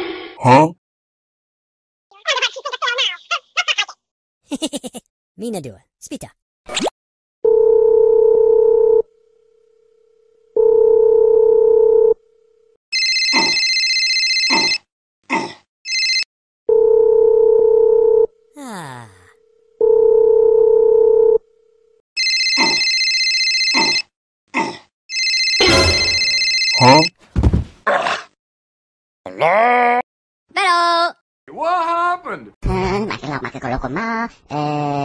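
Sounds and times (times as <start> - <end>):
shrill electronic phone ring: 12.9 - 14.9, 15.9 - 18.3, 22.2 - 24.1, 25.1 - 27.1.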